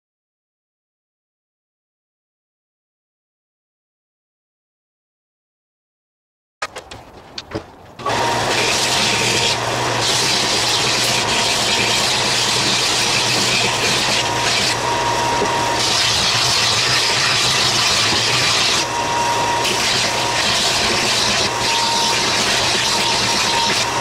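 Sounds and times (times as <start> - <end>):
belt sander sanding wood: 6.8 - 24.0.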